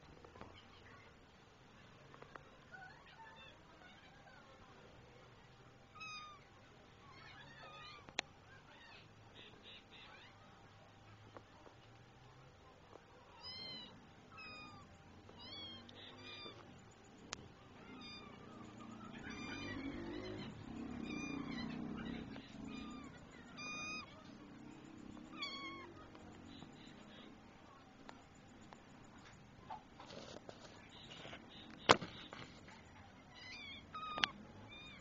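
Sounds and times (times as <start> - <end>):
young cat meowing: 13.3 - 16.6, 17.8 - 24.1, 25.3 - 26.0.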